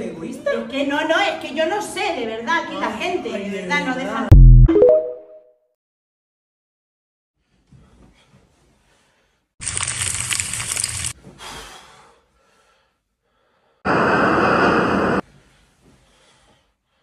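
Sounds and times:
loud bursts of noise: 0:13.9 - 0:15.2.

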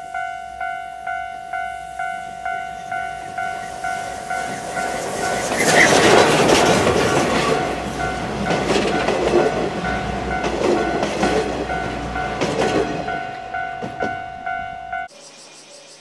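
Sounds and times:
train wheels clacking over rail joints: 0:03.7 - 0:14.2.

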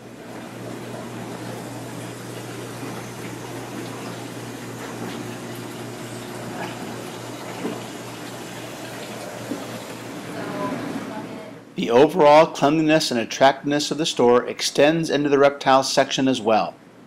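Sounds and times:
circulation pumps humming: 0:00.0 - 0:17.0
water splashing and trickling: 0:00.2 - 0:10.2.

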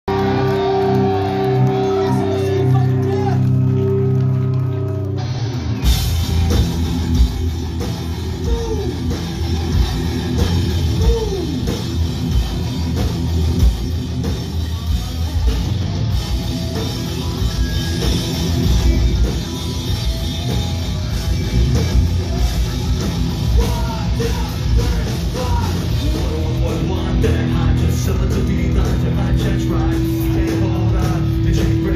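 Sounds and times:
bass guitar: 0:00.0 - 0:31.9
drums: 0:00.0 - 0:31.9
distorted electric guitars: 0:00.1 - 0:31.9
person singing: 0:08.3 - 0:09.2, 0:10.8 - 0:11.8, 0:17.1 - 0:31.9.

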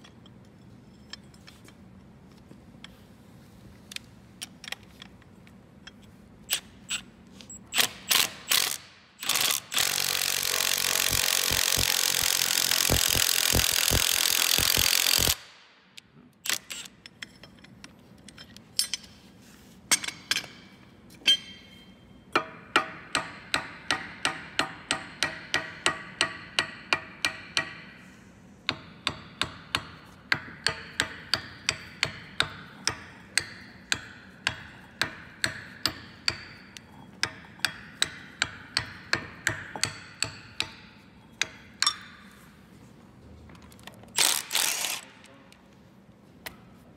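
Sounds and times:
power tool running: 0:07.8 - 0:15.4, 0:44.2 - 0:45.1
hammer tapping on steel: 0:22.3 - 0:27.9, 0:28.7 - 0:42.2.

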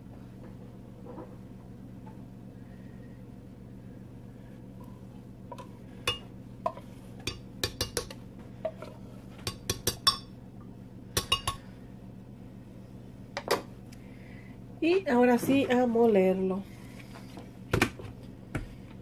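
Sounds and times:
metal spoon clinking on glass: 0:09.5 - 0:10.3, 0:11.2 - 0:11.6.

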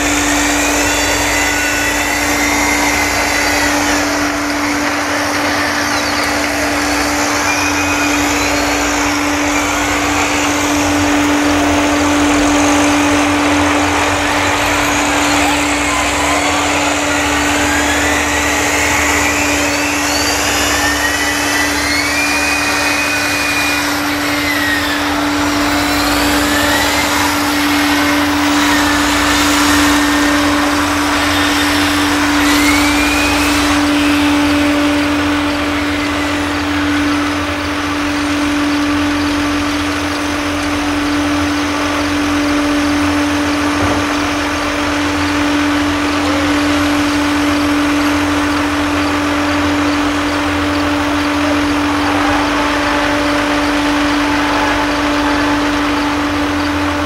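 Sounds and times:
high whines: 0:00.0 - 0:57.0
tractor engine drone: 0:00.0 - 0:57.0.

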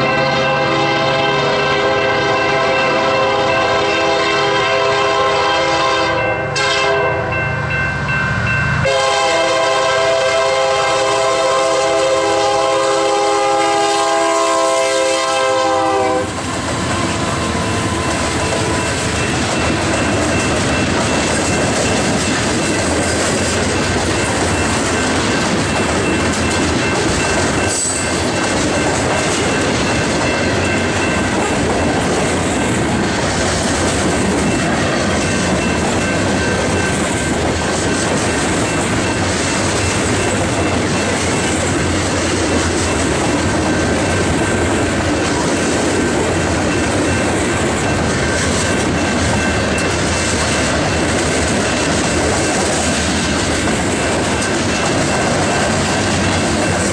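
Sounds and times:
locomotive horn blasts: 0:00.0 - 0:07.4, 0:08.8 - 0:16.4
freight cars rolling on rails: 0:10.5 - 0:56.9.

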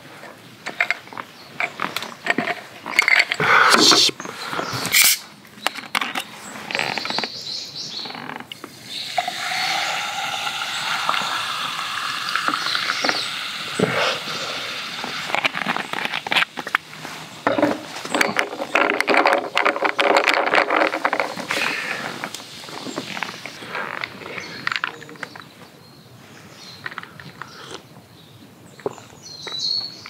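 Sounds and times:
fizz of bubbles: 0:08.7 - 0:15.8
water pouring over ice: 0:08.7 - 0:15.8
ice clicking in glass: 0:08.9 - 0:13.7.

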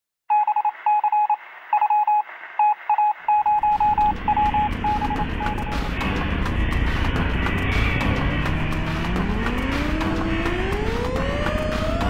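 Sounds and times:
morse code beeping: 0:00.3 - 0:06.0
low rumbling noise: 0:03.4 - 0:12.0.

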